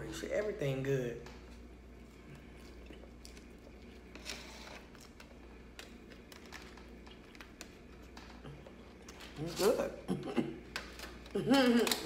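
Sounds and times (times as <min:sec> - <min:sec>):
low steady hum: 0:00.0 - 0:12.0
person chewing salad: 0:01.6 - 0:09.4.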